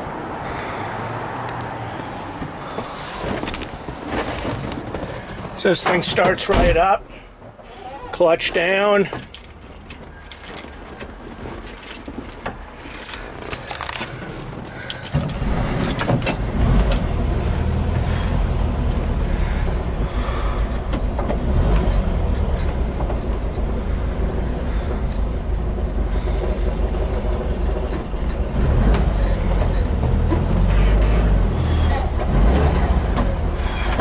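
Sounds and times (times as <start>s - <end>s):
keys jingling in ignition: 8.5s - 17.2s, 21.4s - 25.9s
engine starting and idling: 13.4s - 34.0s.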